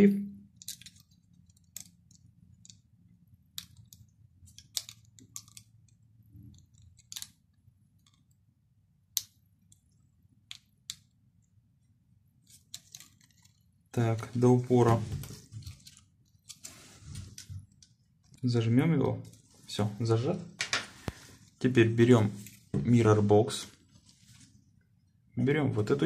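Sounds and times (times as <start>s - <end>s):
plastic clicks and crinkles: 0.5s - 2.9s, 3.5s - 8.4s, 12.5s - 13.7s.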